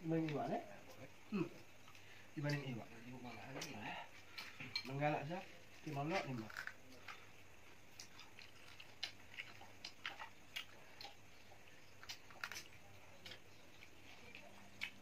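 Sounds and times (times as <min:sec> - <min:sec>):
chewing and biting: 0:06.1 - 0:15.0.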